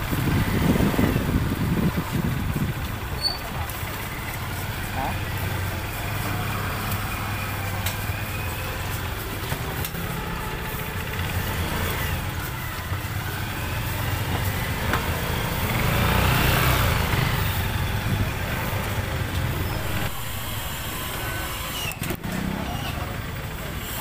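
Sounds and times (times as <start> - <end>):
motorcycle and scooter engines: 0.0 - 24.0.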